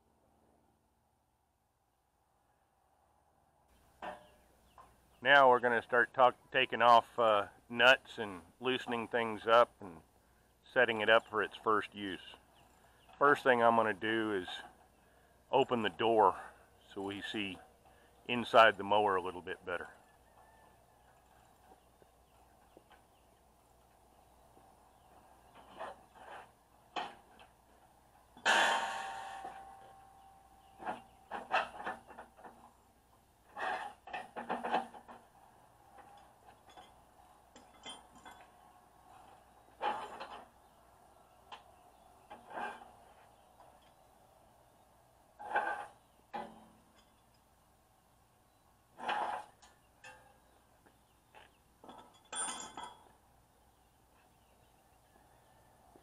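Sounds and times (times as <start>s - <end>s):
steel parts clinking and clanking: 28.4s - 32.7s, 36.0s - 40.6s, 49.0s - 50.4s, 51.8s - 53.2s
metal hand tools clinking: 51.9s - 53.1s.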